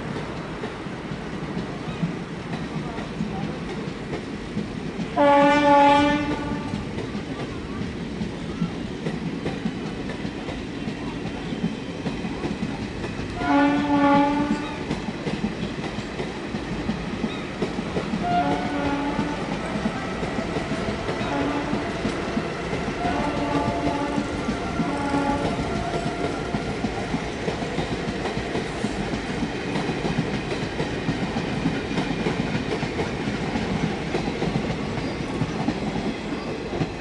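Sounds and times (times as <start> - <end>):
train wheels clickety-clack: 0.0 - 37.0
locomotive horn blasts: 5.2 - 6.8, 13.4 - 14.7, 18.2 - 19.9, 21.3 - 22.0, 23.0 - 25.8.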